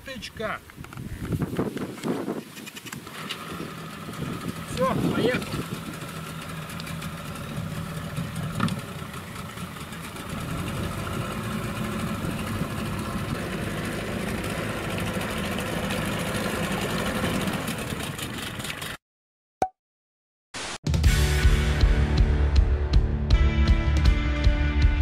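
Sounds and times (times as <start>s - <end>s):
outboard motor running: 3.0s - 19.0s.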